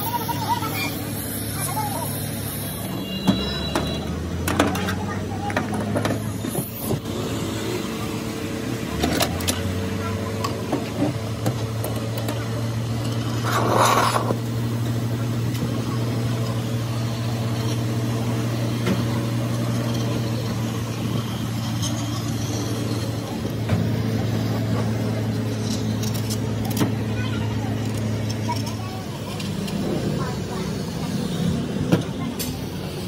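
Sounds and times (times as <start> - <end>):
constant low hum: 3.0 - 33.0
gas torch burning: 11.7 - 26.6.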